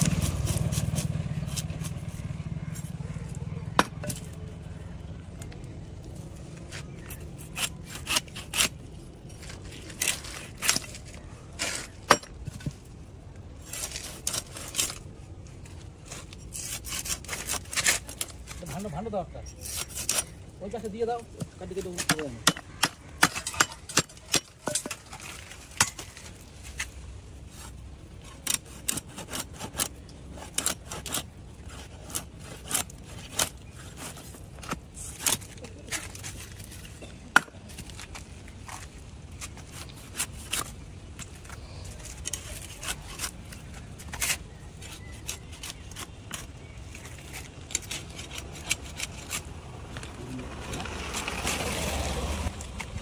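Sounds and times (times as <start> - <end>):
cleaver chopping on wooden block: 3.7 - 4.3.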